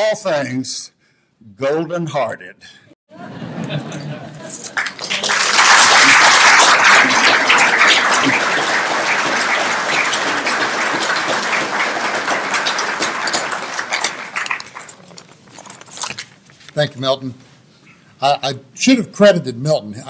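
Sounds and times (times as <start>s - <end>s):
audience applauding: 4.5s - 15.4s.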